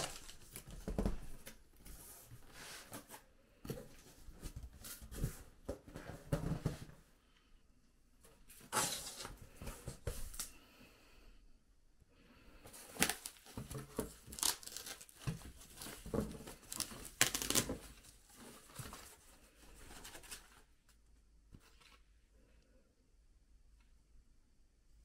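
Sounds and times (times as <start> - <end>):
plastic bag crinkling: 12.8 - 17.9.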